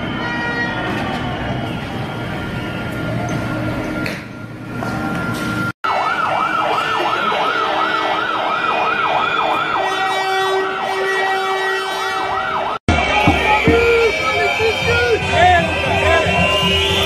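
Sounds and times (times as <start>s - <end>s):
street noise: 0.0s - 17.0s
siren yelping: 4.8s - 17.0s.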